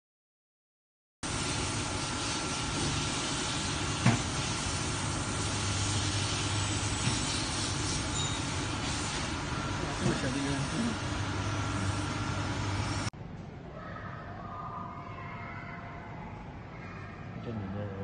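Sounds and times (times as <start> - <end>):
leather dyeing machine running: 1.2 - 13.1.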